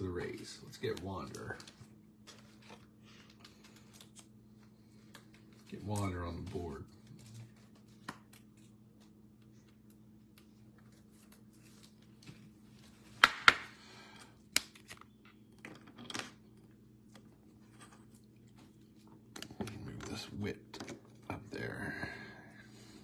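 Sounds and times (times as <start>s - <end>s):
cards rustling: 0.6s - 13.1s, 14.4s - 15.6s.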